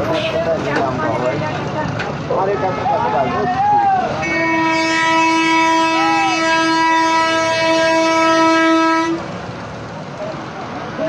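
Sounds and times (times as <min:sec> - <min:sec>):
vehicle horn blast: 0:04.2 - 0:09.2.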